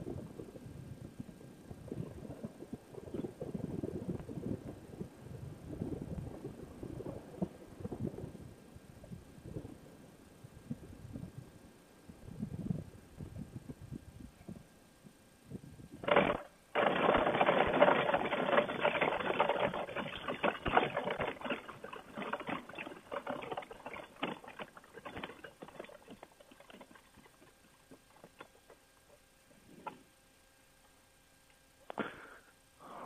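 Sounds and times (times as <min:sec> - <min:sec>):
wheels and frame rattling: 0:16.0 - 0:30.0.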